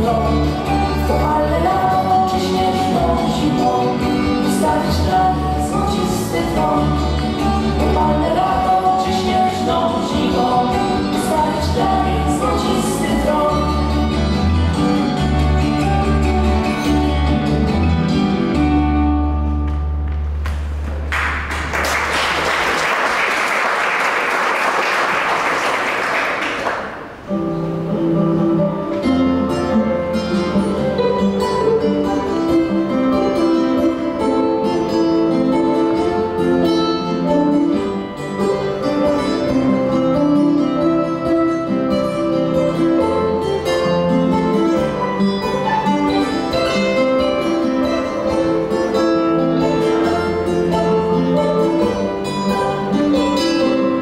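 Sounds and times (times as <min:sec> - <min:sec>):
woman singing: 0:00.0 - 0:14.0
acoustic guitars: 0:00.0 - 0:54.0
audience applause: 0:20.5 - 0:27.2
violin: 0:28.2 - 0:54.0.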